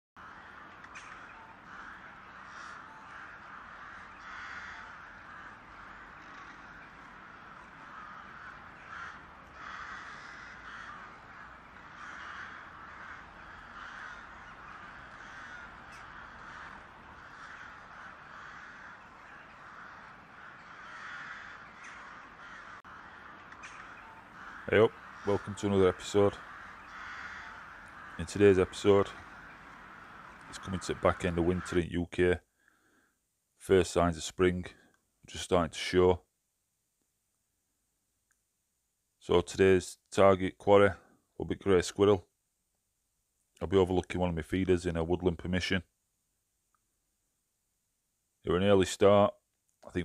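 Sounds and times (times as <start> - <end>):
crows cawing: 0.2 - 33.2.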